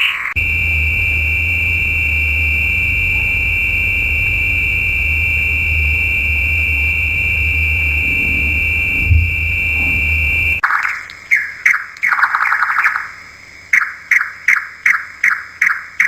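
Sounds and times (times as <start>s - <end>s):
low rumble: 0.4s - 10.6s.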